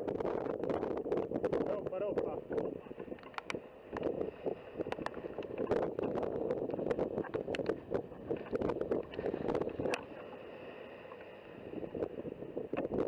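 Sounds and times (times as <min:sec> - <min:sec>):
wind on microphone: 0:00.0 - 0:13.0
sharp clicks and pops: 0:03.0 - 0:04.2, 0:04.8 - 0:10.1.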